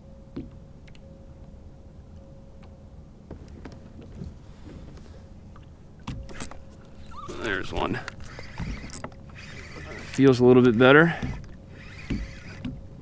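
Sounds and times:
faint high hum: 0.0s - 13.0s
fishing tackle clicks and knocks: 5.6s - 9.4s.

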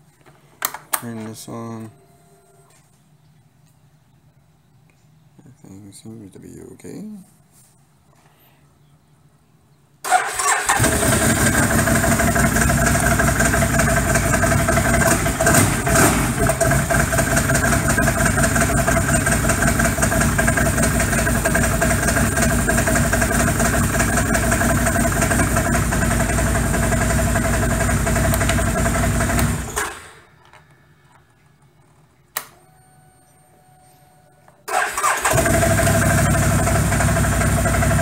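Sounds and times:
engine cranking and starting: 10.0s - 30.4s, 34.7s - 38.0s
engine idling: 10.1s - 30.0s, 34.7s - 38.0s.

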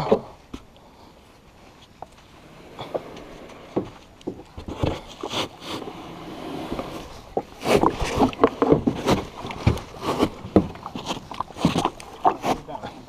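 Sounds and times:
kayak and paddle knocking: 2.8s - 12.8s
water splashing: 4.3s - 13.0s.

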